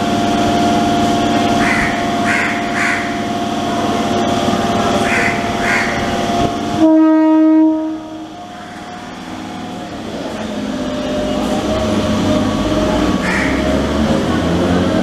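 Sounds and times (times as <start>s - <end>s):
train rumble and wheel noise: 0.0s - 15.0s
train horn blast: 6.7s - 8.4s.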